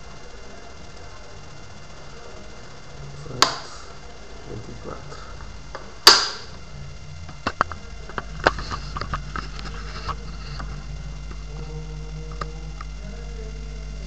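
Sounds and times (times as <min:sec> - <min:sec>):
projector switch snap: 0:03.3 - 0:03.9, 0:05.7 - 0:06.6.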